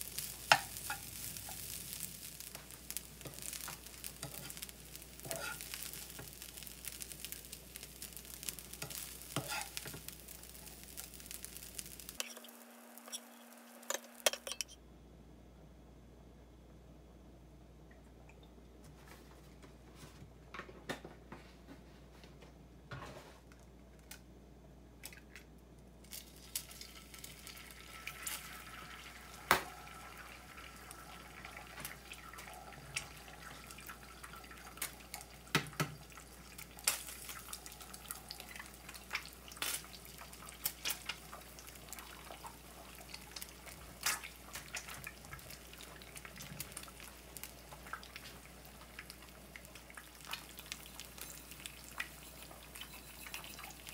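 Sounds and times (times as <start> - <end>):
oil popping in pan: 0.0 - 14.7, 26.0 - 53.9
eggs sizzling and crackling: 0.0 - 14.8, 25.0 - 53.9.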